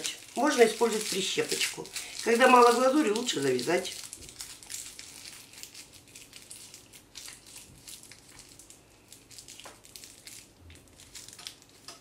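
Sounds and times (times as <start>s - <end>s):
plastic bag crinkling: 0.0s - 12.0s.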